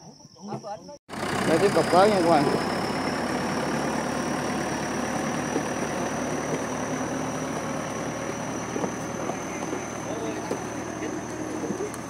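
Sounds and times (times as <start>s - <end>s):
tractor diesel engine running: 1.1s - 12.0s.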